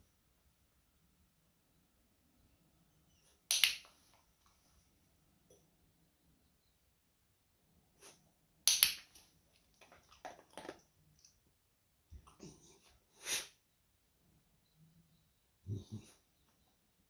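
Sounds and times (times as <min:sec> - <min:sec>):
sharp clicks: 0:03.5 - 0:03.9, 0:08.7 - 0:09.2.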